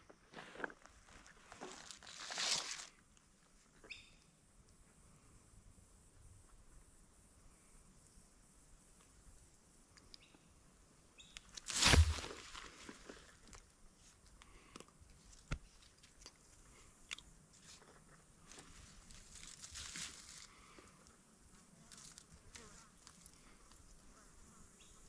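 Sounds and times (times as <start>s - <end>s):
soft rustle: 0.4s - 3.0s, 11.6s - 14.3s, 17.5s - 24.2s.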